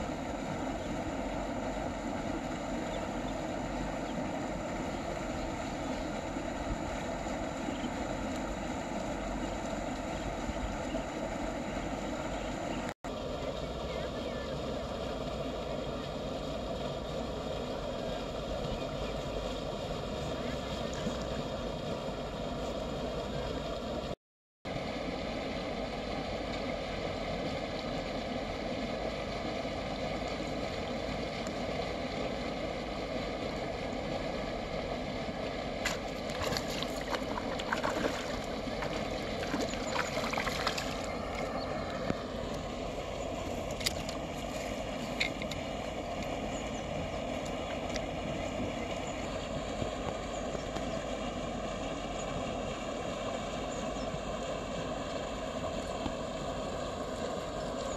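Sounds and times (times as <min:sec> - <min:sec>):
steady mechanical drone: 0:00.0 - 0:57.9
fish splashing at surface: 0:35.8 - 0:41.5.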